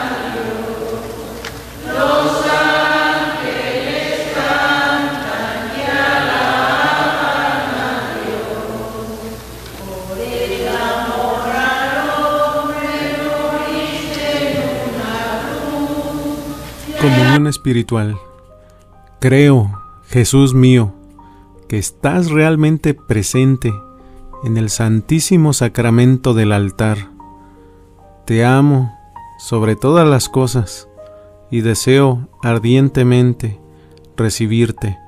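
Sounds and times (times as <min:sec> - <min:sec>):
choir singing a hymn: 0:00.0 - 0:17.4.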